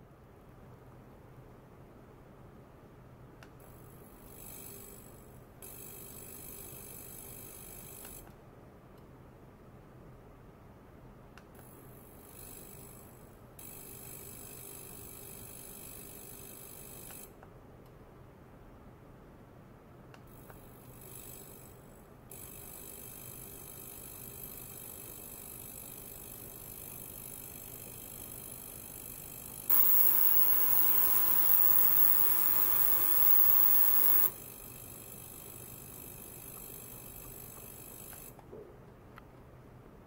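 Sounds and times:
ultrasonic cleaner hiss: 0:29.7 - 0:34.4.

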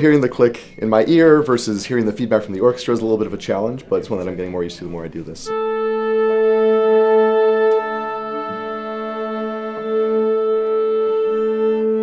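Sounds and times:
orchestra instruments sustained notes: 0:05.4 - 0:12.0
oboe holding a note: 0:05.5 - 0:12.0.

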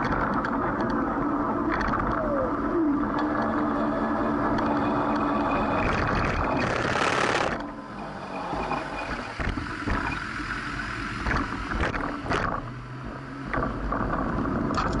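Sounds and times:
wind on microphone: 0:00.0 - 0:10.3
bicycle road rumble: 0:00.0 - 0:15.0.

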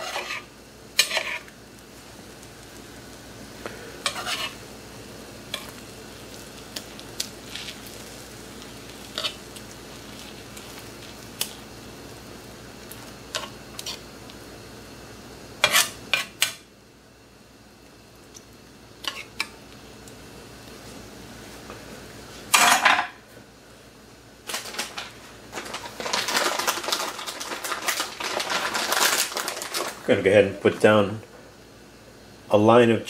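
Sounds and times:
metal spatula scraping a skillet: 0:00.0 - 0:01.5, 0:04.0 - 0:04.6, 0:15.6 - 0:16.4
eggs sizzling: 0:00.0 - 0:16.5, 0:24.5 - 0:31.0.

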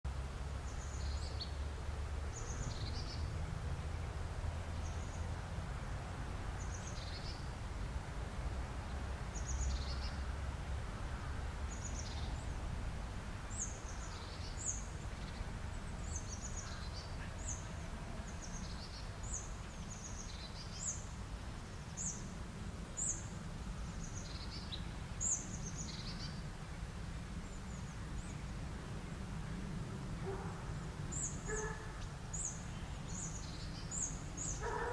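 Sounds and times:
small birds chirping: 0:00.7 - 0:01.7, 0:02.3 - 0:03.3, 0:06.6 - 0:07.5, 0:11.7 - 0:12.7, 0:13.5 - 0:22.3, 0:23.0 - 0:26.5, 0:31.1 - 0:34.9.

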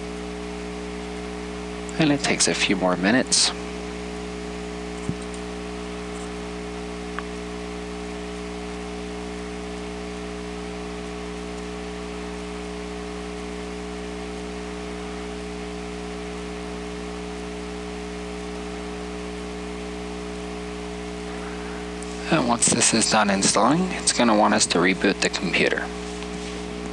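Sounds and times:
constant hiss: 0:01.8 - 0:04.2, 0:20.3 - 0:26.9
steady tonal hum: 0:18.5 - 0:26.9.

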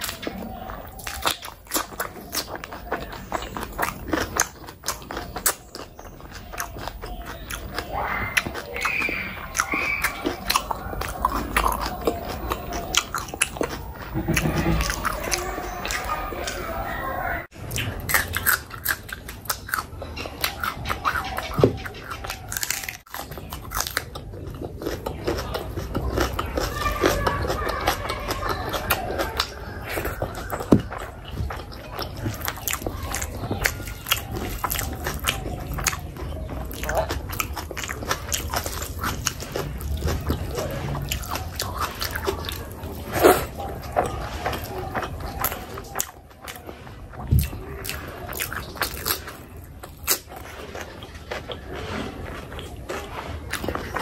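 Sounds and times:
chewing and biting food: 0:00.0 - 0:54.0
mouth smacks: 0:27.5 - 0:54.0.

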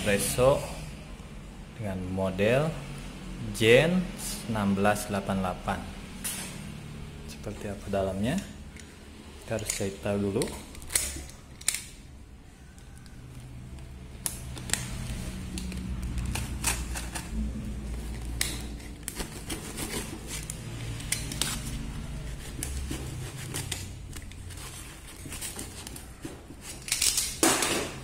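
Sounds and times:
cardboard clicks and rustles: 0:14.3 - 0:28.0.

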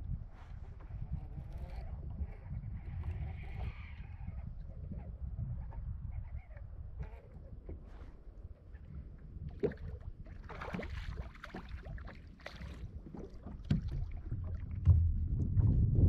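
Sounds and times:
wind rumble on microphone: 0:00.0 - 0:16.0
low thumps: 0:13.7 - 0:16.0.

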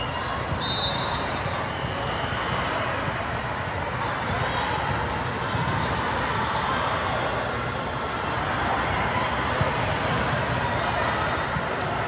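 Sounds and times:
dense wash of voices: 0:00.0 - 0:12.0
volleyballs bouncing and struck: 0:00.2 - 0:12.0.

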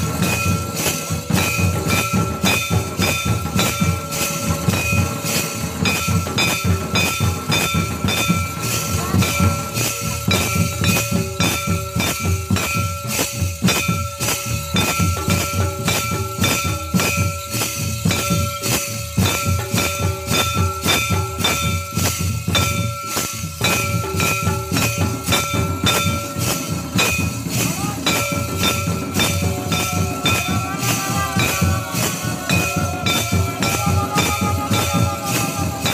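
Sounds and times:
drums in fast steady beat: 0:00.0 - 0:35.9
steady high tone: 0:22.6 - 0:35.9.

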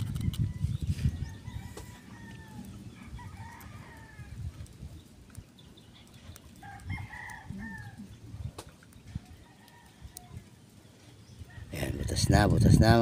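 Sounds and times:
low rumble on microphone: 0:00.0 - 0:09.4.

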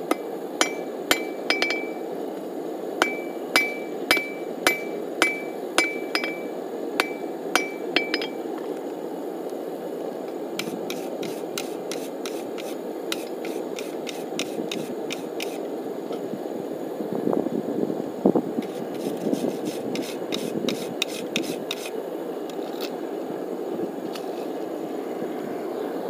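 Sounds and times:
hammer striking metal on anvil: 0:00.0 - 0:02.1, 0:03.0 - 0:08.4.

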